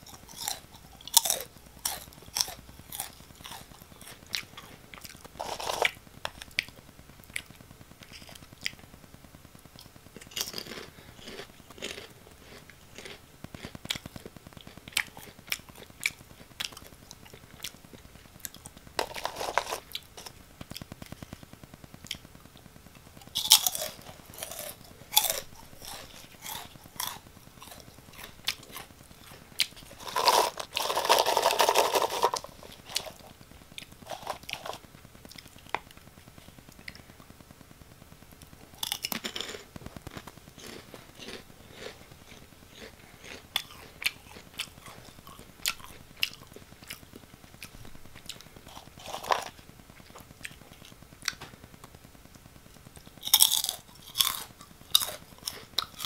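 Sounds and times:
crunching and chewing snack: 0.0 - 8.9, 9.7 - 21.4, 22.9 - 37.2, 38.4 - 52.0, 53.0 - 56.0
rustling bowl: 5.3 - 6.0, 19.0 - 20.4, 23.3 - 33.4, 34.0 - 34.8.

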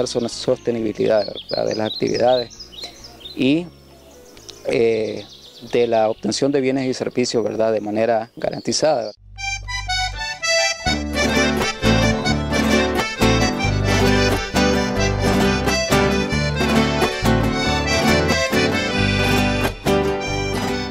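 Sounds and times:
instrumental band music: 9.4 - 20.9.

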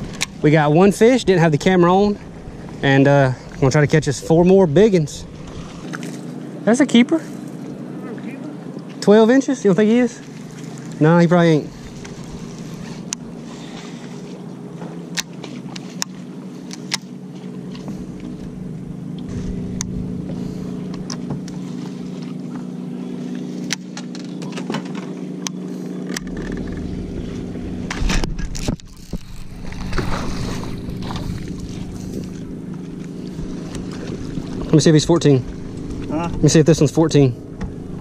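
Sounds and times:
electric trolling motor humming: 0.0 - 38.0.

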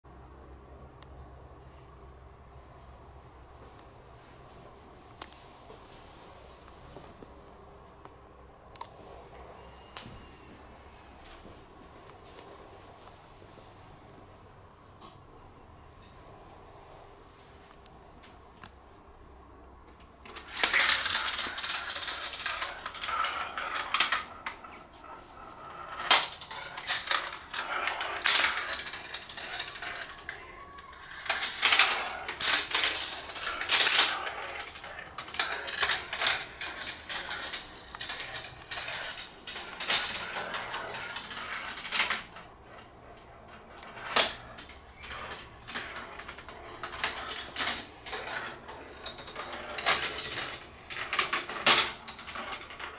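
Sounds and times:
marbles rolling on plastic tracks: 20.0 - 52.9
marbles clicking on track pieces: 20.3 - 52.9.

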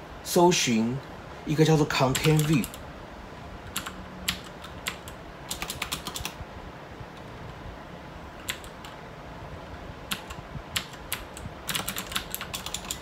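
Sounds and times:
computer keyboard typing: 1.9 - 2.8, 3.6 - 6.4, 8.4 - 9.0, 10.1 - 13.0.

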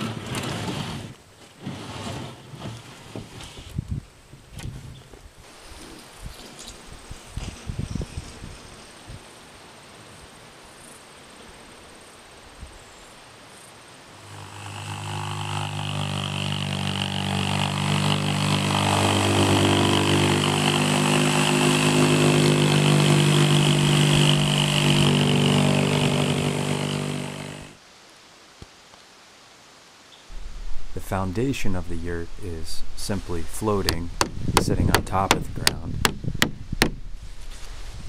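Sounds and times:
quiet outdoor background: 0.0 - 38.0
jigsaw cutting wood board: 14.2 - 27.8.

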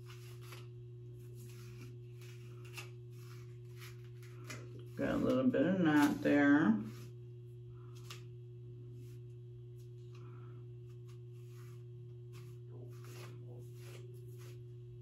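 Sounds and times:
comb scratching through wig: 0.0 - 7.2, 10.9 - 14.9
steady low hum: 0.0 - 15.0.

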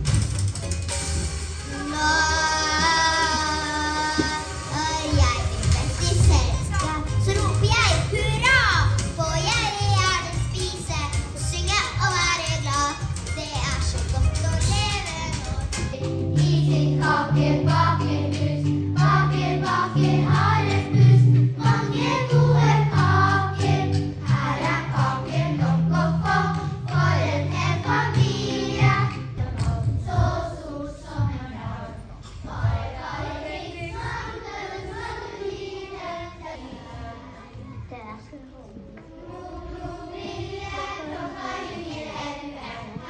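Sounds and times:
instrumental accompaniment with bass: 0.0 - 30.6
children singing: 1.7 - 15.8, 16.4 - 37.8, 39.1 - 43.0.

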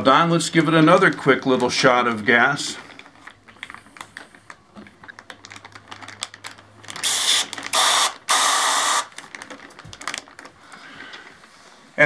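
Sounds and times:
plastic zip bag crinkling: 0.2 - 11.5
gas hissing through a tube: 7.0 - 9.1.

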